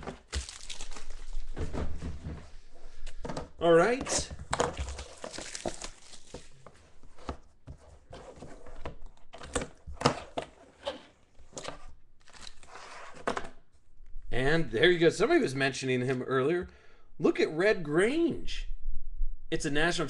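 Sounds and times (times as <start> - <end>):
plastic wrap crinkling: 0.0 - 1.7, 4.7 - 6.6.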